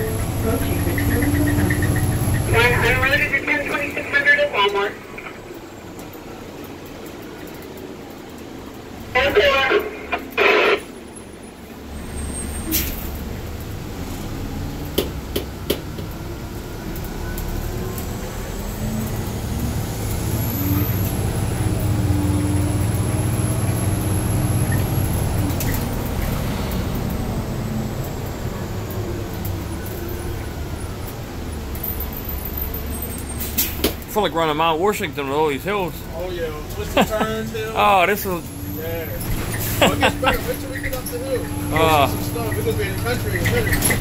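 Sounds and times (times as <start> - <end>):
bus knocks and rattles: 0.0 - 4.0, 12.4 - 17.1, 18.0 - 32.2, 33.0 - 34.5, 39.0 - 44.0
bus engine drone: 0.0 - 44.0.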